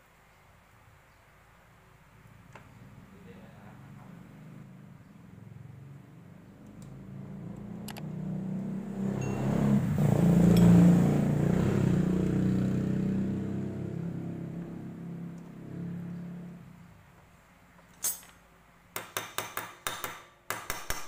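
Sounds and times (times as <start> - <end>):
vehicle engine passing by: 2.7 - 17.0.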